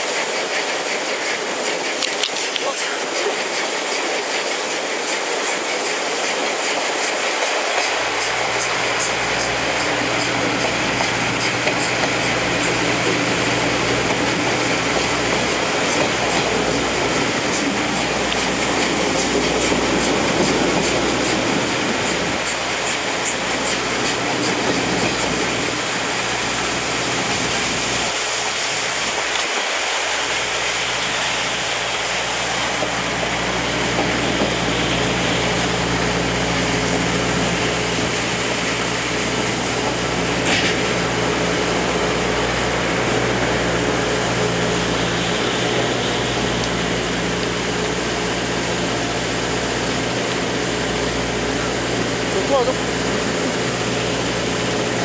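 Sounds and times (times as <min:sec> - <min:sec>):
rail-joint clicks: 0:00.0 - 0:26.0, 0:28.0 - 0:30.3
train wheels rumbling on rail: 0:00.0 - 0:55.0.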